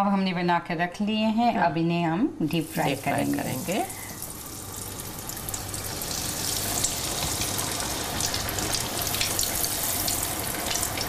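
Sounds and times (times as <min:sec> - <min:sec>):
hot oil sizzling and crackling: 0:02.5 - 0:11.0.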